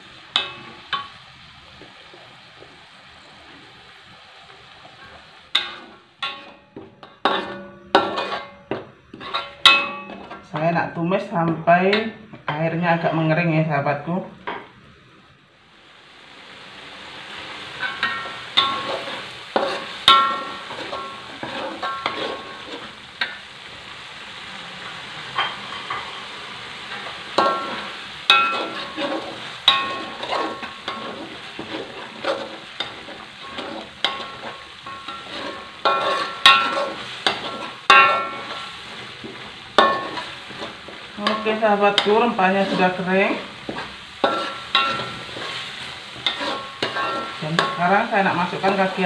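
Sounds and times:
paste sizzling in a wok: 0.0 - 49.0
metal spatula scraping a wok: 5.0 - 13.2, 17.7 - 23.4, 24.8 - 49.0
spatula clinking on pan: 5.5 - 10.4, 17.8 - 22.5, 27.4 - 31.3, 32.2 - 38.8, 39.8 - 42.8, 43.7 - 45.6, 46.2 - 48.0.

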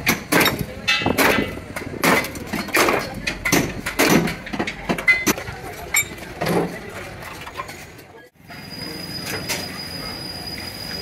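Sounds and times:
steel panels knocking and clanking: 0.0 - 7.8.

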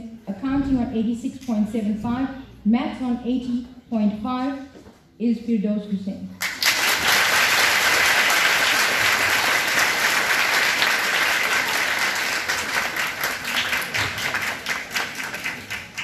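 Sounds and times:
audience applauding: 6.4 - 16.0.

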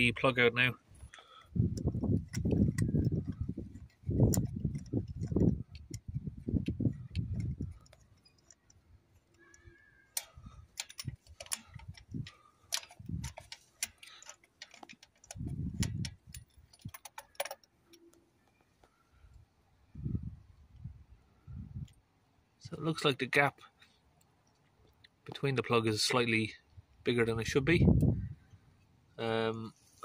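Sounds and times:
ratchet metallic clicks: 1.0 - 18.2
wind buffeting microphone: 1.4 - 8.0, 10.4 - 13.5, 15.2 - 17.0, 19.9 - 21.9, 27.4 - 28.6.

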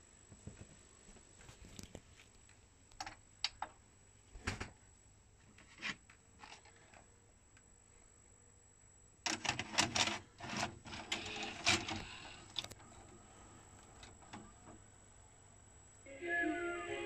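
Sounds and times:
faint hum: 0.0 - 17.0
mechanical clicks and clunks: 9.3 - 13.2.

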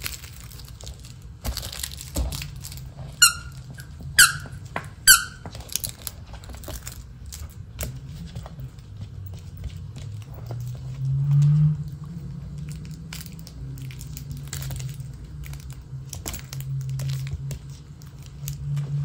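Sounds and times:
handling clicks and rustles: 0.0 - 19.0
squeaky dog toy squeaking: 3.0 - 5.5.

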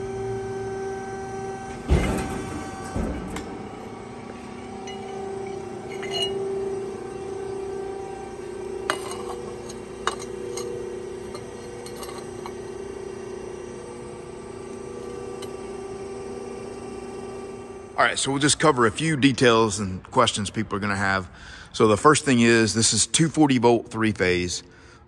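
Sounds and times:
hydraulic pump humming: 0.0 - 19.0
steel brackets clinking: 4.7 - 7.0, 8.4 - 12.8.

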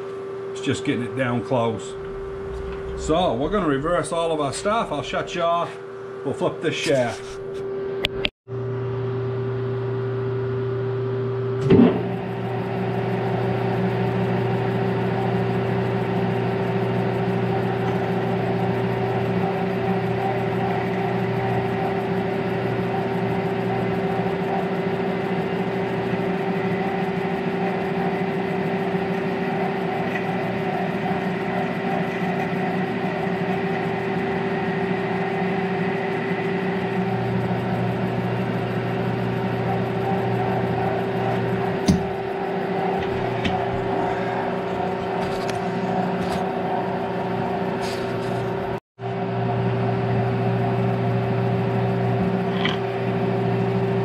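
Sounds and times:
metal lathe motor hum: 0.3 - 6.2, 8.6 - 54.0.

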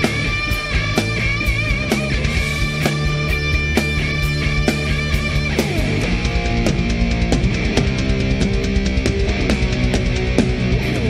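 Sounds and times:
distorted electric guitar: 0.0 - 11.0
drums hitting: 0.0 - 11.0.

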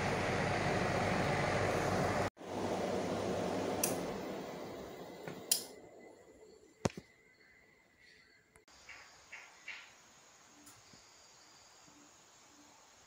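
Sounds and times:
air conditioner blower fan: 0.0 - 5.9.

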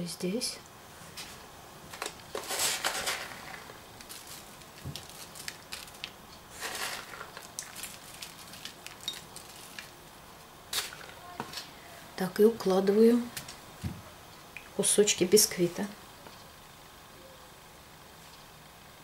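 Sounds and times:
chopped nuts rustling and pattering: 1.9 - 10.0, 10.7 - 11.7.

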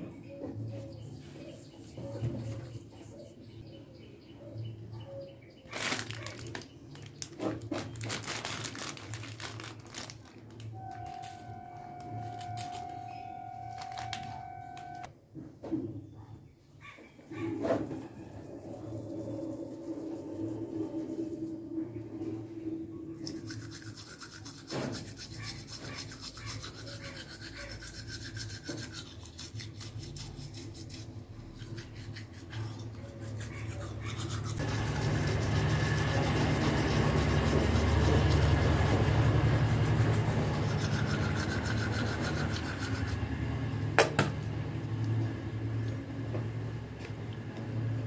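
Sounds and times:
toothbrush scrubbing: 0.7 - 3.6, 23.2 - 43.2.

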